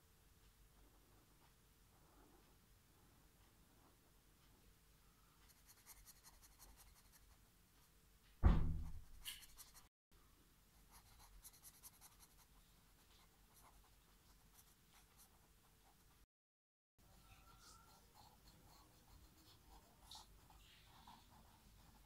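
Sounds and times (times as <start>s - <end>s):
marker scratching on paper: 5.5s - 7.4s, 8.9s - 9.9s, 10.9s - 16.1s, 17.6s - 22.0s
loud thump: 8.4s - 9.2s.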